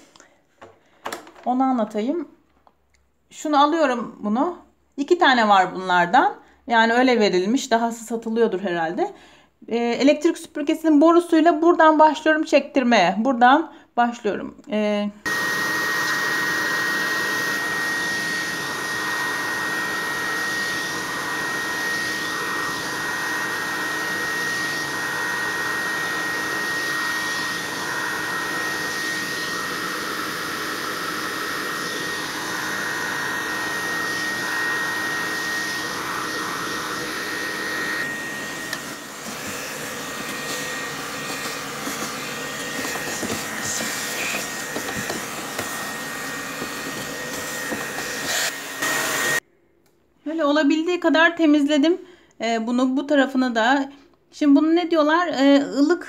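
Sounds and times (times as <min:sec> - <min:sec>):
vacuum cleaner whining: 0:15.2 - 0:49.4.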